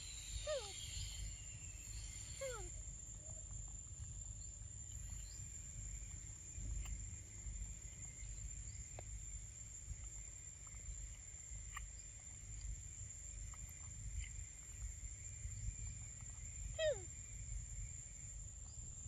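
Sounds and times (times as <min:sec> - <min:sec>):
high-pitched insect drone: 0:00.0 - 0:02.8.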